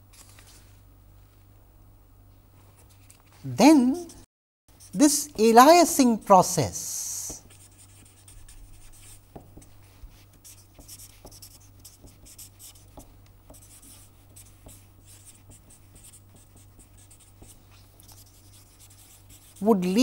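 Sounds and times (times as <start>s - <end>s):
faint low hum: 0.0s - 20.0s
marker pen scratching on paper: 7.2s - 20.0s.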